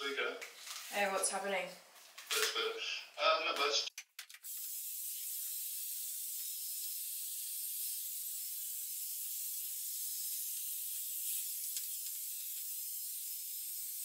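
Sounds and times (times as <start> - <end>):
hot-air brush blowing: 4.5 - 14.0.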